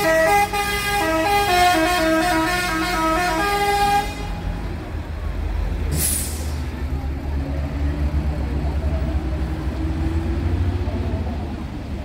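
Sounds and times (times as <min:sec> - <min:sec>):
bus engine rumble rising: 0:00.0 - 0:12.0
air release hiss: 0:05.9 - 0:06.6.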